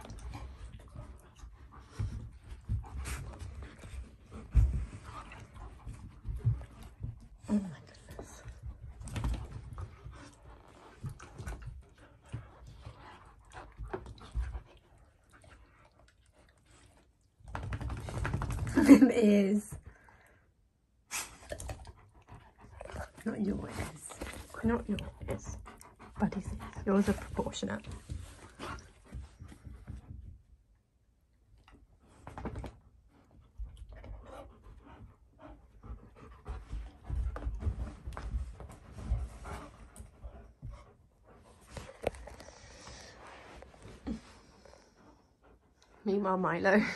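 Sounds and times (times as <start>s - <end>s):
paws and bodies thudding on floor: 0.0s - 15.0s, 22.6s - 30.6s, 32.0s - 45.6s
dogs panting: 0.0s - 17.1s, 21.5s - 30.3s, 33.1s - 46.9s.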